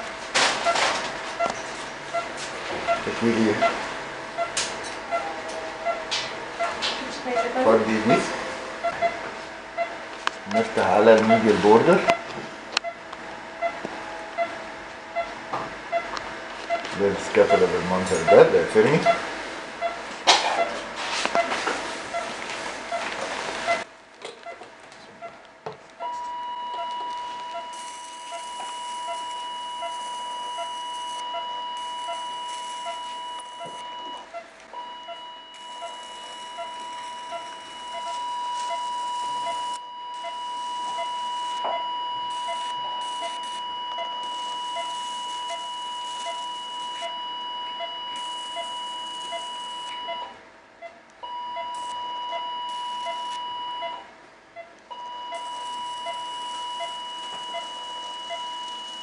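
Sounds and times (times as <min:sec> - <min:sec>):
electrosurgical activation tone: 0:00.0 - 0:24.6, 0:26.0 - 0:50.4, 0:51.2 - 0:59.0.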